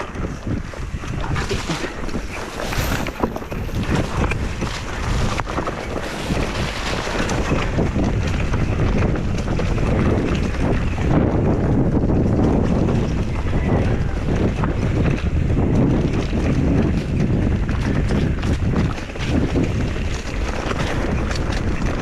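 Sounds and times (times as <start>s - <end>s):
bike rattles and clicks: 0.0s - 22.0s
wind buffeting microphone: 0.0s - 22.0s
tyres rumbling over dirt: 1.0s - 10.7s.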